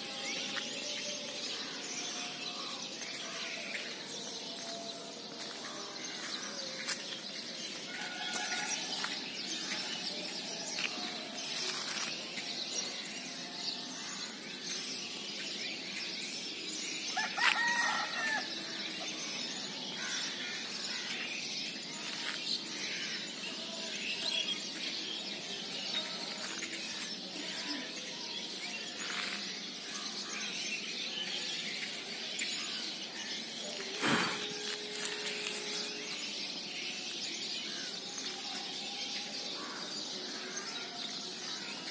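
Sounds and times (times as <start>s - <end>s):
small birds chirping: 0.0s - 41.9s
rooster crowing: 17.2s - 18.5s.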